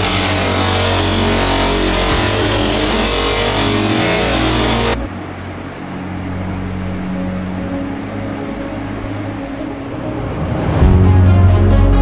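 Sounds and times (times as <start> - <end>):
bench grinder buffing metal: 0.0 - 5.1.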